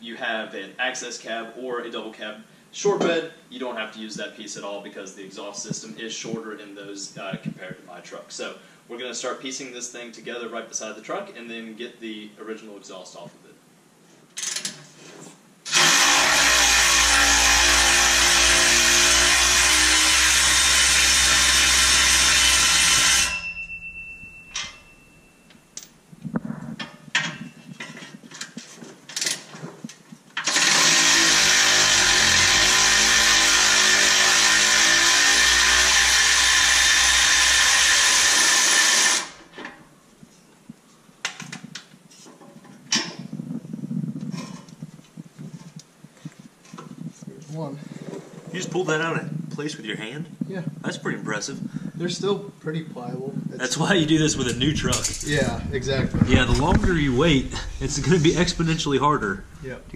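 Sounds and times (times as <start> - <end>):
cordless power tool running: 15.7 - 23.4, 30.4 - 39.4.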